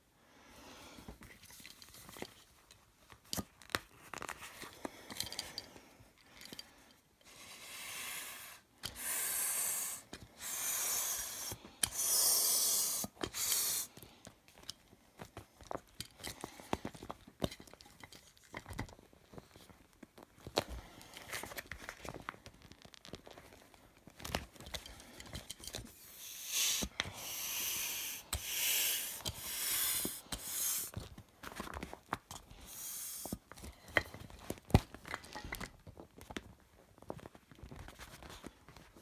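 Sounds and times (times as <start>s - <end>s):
vinyl crinkling and rustling: 1.1s - 5.1s, 14.0s - 25.9s, 31.0s - 32.6s, 33.4s - 39.0s
pump hissing air bursts: 7.4s - 13.9s, 26.0s - 30.9s, 32.7s - 33.4s.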